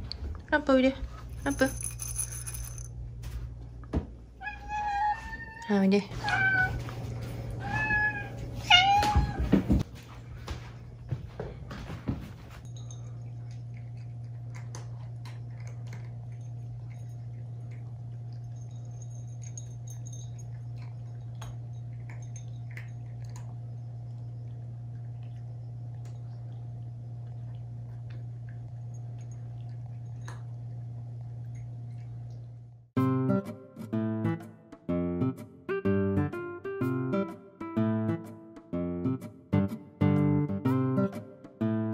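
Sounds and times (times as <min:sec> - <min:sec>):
low hum: 0:00.0 - 0:05.2, 0:12.6 - 0:32.9
cats chewing: 0:12.8 - 0:32.5.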